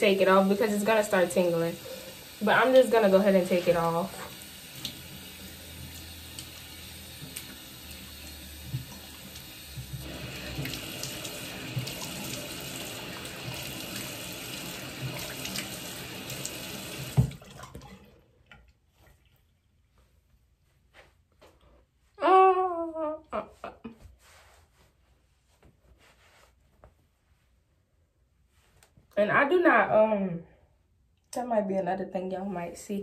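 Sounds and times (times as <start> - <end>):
sink tap running: 0.0 - 18.1
water splashing: 0.2 - 19.6.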